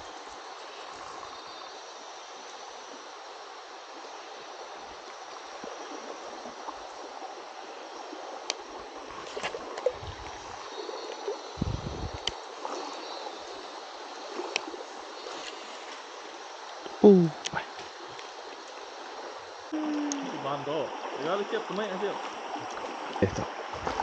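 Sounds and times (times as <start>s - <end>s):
shallow river water rushing: 0.0s - 24.0s
dull low thumps: 11.6s - 12.3s.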